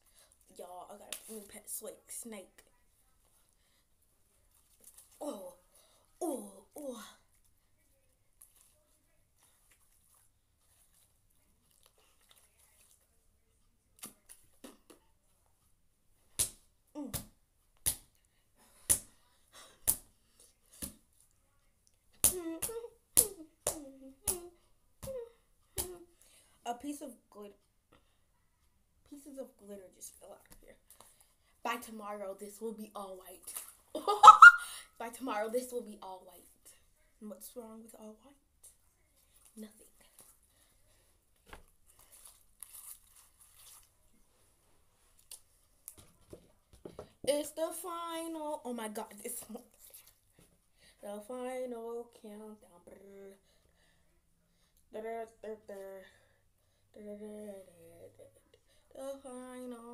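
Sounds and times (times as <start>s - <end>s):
crinkling handling noise: 41.3s - 47.0s.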